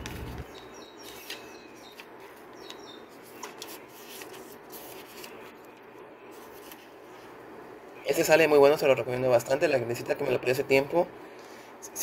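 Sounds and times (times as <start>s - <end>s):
paper pages rustling: 0.0s - 7.3s
faint bird chirps: 0.4s - 3.4s.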